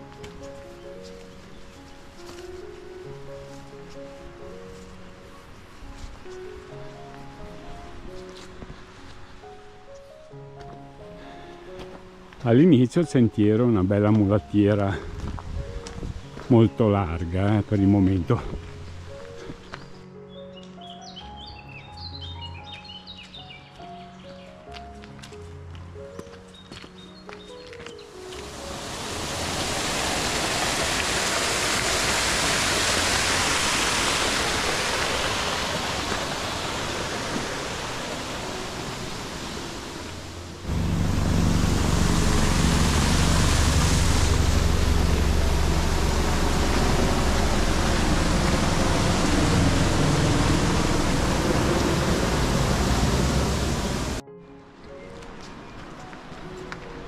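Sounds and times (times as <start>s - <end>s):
stream water rushing: 28.1s - 54.2s
small waterfall rushing: 28.2s - 54.2s.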